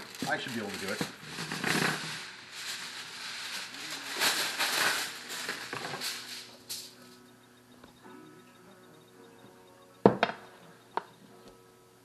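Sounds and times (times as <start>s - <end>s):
aluminum foil crinkling: 0.0s - 7.2s.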